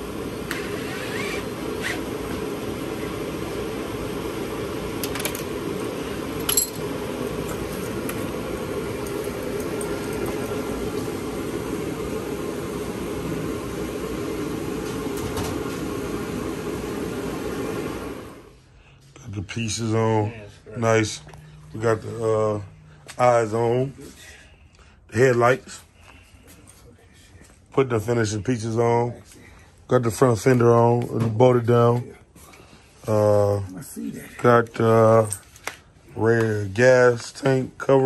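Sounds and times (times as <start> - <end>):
machine hum: 0.0 - 25.1.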